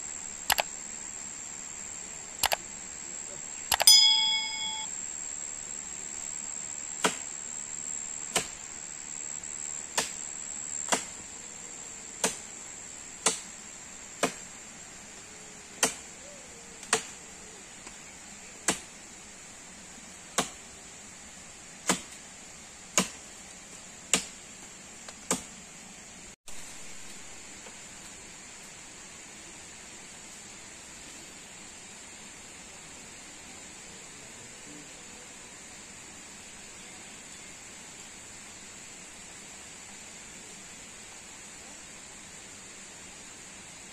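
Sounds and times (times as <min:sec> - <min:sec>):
blade chopping wood: 0:10.9 - 0:11.2, 0:15.8 - 0:16.0, 0:22.9 - 0:23.2.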